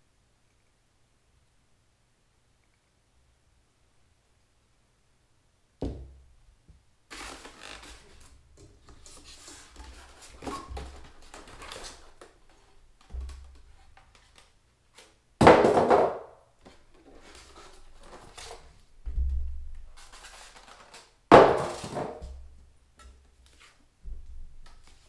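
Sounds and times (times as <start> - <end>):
knock: 5.8 - 6.2.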